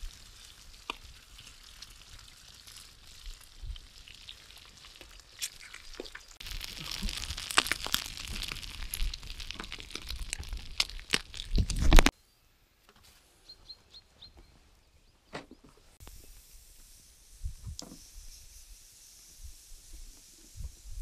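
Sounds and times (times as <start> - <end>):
food sizzling in a pan: 0.0 - 11.1, 16.0 - 21.0.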